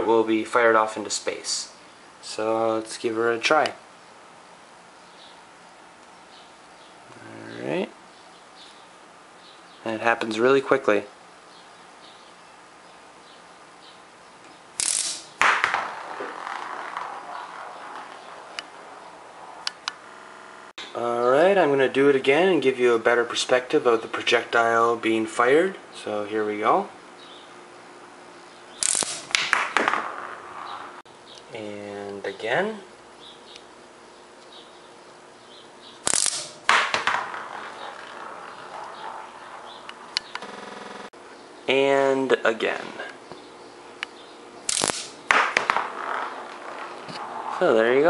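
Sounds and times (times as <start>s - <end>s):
metal balls clacking onto magnets: 14.8s - 18.8s, 36.1s - 40.4s
loud crack: 14.8s - 20.1s, 28.8s - 31.0s, 36.0s - 41.1s, 44.6s - 47.7s.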